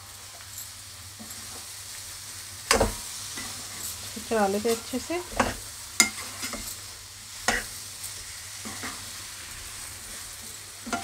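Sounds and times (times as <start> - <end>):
masala sizzling in oil: 0.0 - 11.0
spatula scraping a pan: 2.7 - 11.0.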